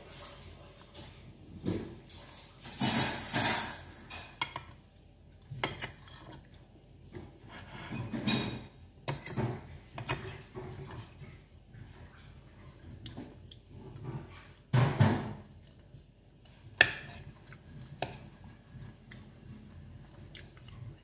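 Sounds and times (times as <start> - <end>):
fork scraping a plate: 5.6 - 6.6, 7.2 - 11.3.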